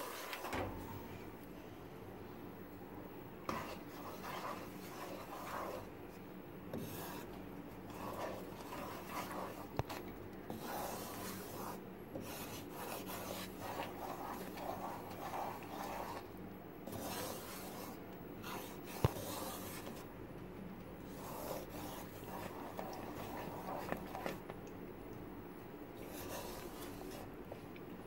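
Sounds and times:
spatula scraping thick paste in pan: 0:00.0 - 0:00.7, 0:03.5 - 0:06.0, 0:06.7 - 0:20.0, 0:21.1 - 0:24.5, 0:26.0 - 0:27.4.

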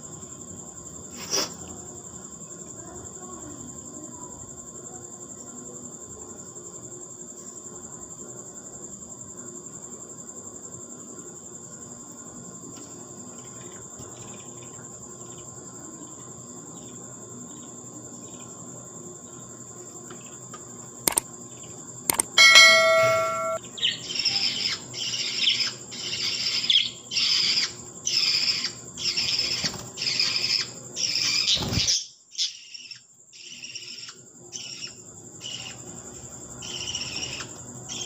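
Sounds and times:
high-pitched insect trill: 0:00.0 - 0:38.0
faint short chirps: 0:22.1 - 0:23.6
sharp click: 0:22.1 - 0:23.6.

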